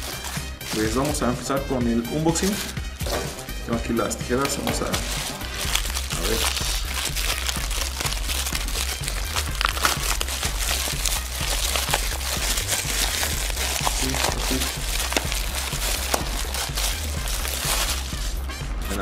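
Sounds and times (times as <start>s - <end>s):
plastic bag crinkling and tearing: 0.0s - 1.2s, 4.9s - 18.4s
plastic-wrapped parcel rustling: 0.0s - 3.2s, 4.5s - 19.0s
music with bass beat: 0.0s - 19.0s.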